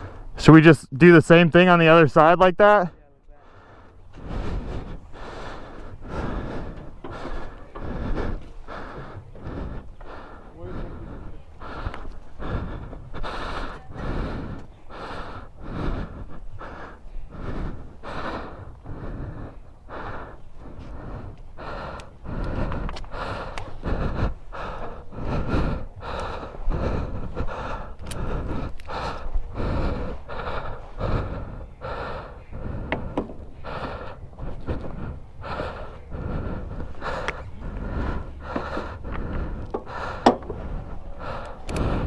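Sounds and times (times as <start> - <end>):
sharp clicks: 41.4 - 42.0.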